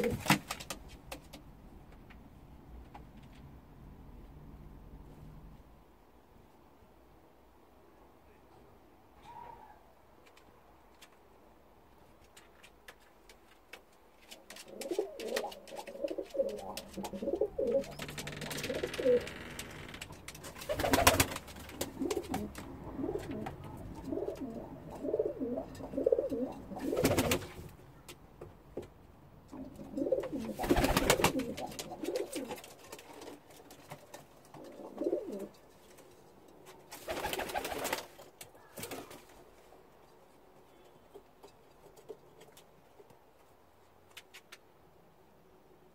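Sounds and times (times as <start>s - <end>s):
pigeons cooing: 0.0s - 0.4s, 14.6s - 19.3s, 20.6s - 27.5s, 29.5s - 32.7s, 34.5s - 35.6s
loud rustling bursts: 17.8s - 22.4s.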